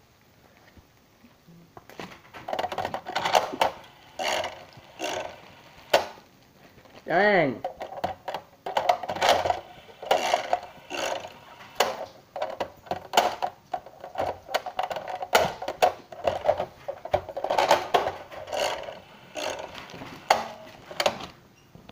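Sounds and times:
toy slot machine clicking and rattling: 2.4 - 6.1, 7.7 - 16.6, 17.3 - 20.6.

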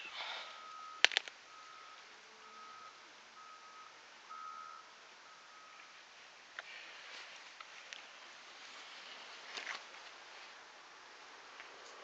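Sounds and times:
sharp clicks: 0.7 - 1.4.

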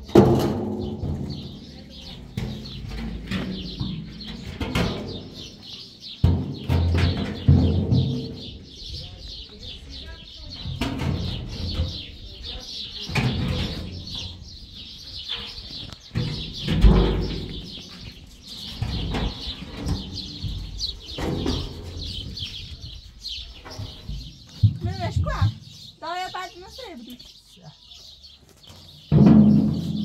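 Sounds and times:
small birds chirping: 0.0 - 30.0
dull low thuds: 13.2 - 26.0.

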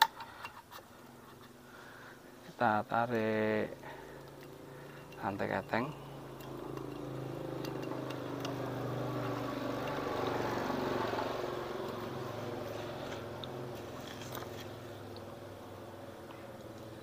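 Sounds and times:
passing vehicle engine: 3.8 - 17.0.

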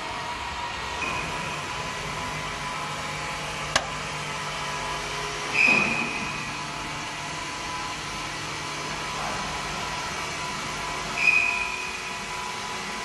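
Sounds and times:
machinery hum: 0.0 - 13.0
sharp click: 3.7 - 3.9.

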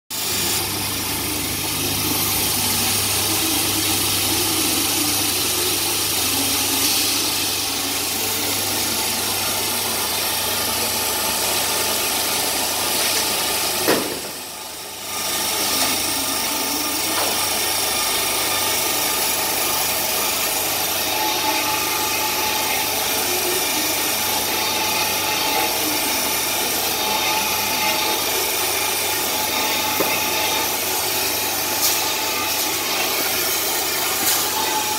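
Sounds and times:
band saw sawing: 0.1 - 34.9.

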